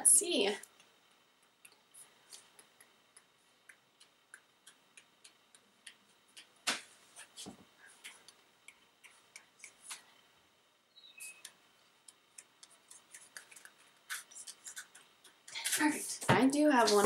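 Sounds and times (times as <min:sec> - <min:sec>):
timer ticking: 0:00.6 - 0:06.6, 0:11.3 - 0:15.6.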